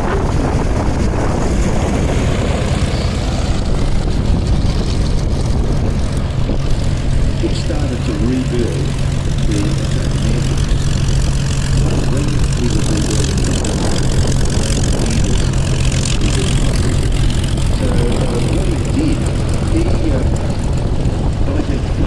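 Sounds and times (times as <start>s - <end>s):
propeller aircraft engine droning: 0.0s - 22.0s
faint voices: 11.8s - 22.0s.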